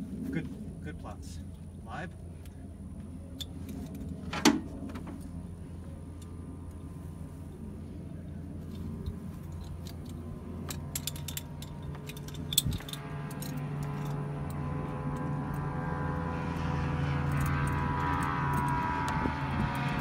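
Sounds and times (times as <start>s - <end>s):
metallic clicks and jingles: 8.6s - 15.8s, 17.2s - 20.0s.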